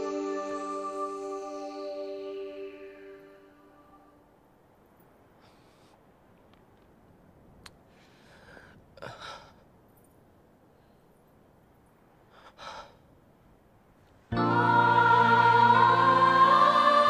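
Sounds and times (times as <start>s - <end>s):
film score with held chords: 0.0s - 4.3s, 14.3s - 17.0s
man sighing: 12.4s - 13.0s.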